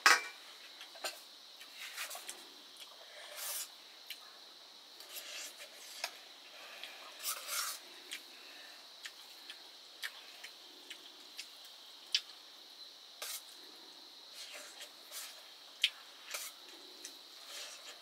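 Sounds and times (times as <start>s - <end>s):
dishes and cutlery clinking: 0.0s - 0.4s
wet squishes of eating: 5.0s - 12.5s.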